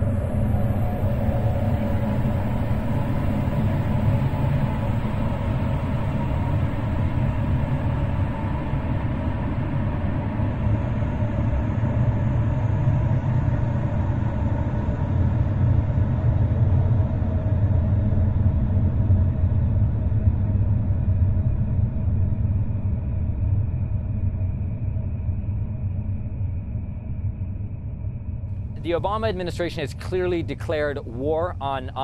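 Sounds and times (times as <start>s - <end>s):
loud low rumble: 0.0s - 6.9s, 20.3s - 32.0s.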